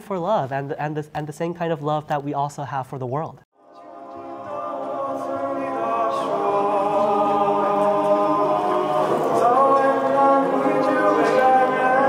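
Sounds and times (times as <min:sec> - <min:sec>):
male choir singing a held chord: 0:03.6 - 0:12.0.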